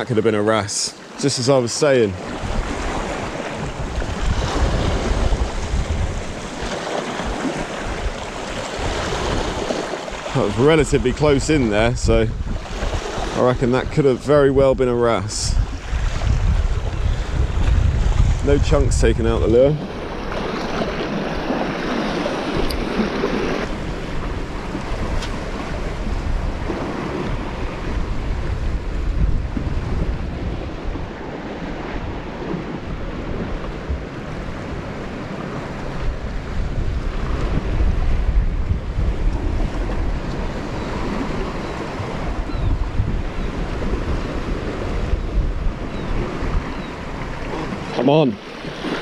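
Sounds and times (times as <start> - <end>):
waves washing against rocks: 0.0 - 49.0
wind on microphone: 2.0 - 49.0.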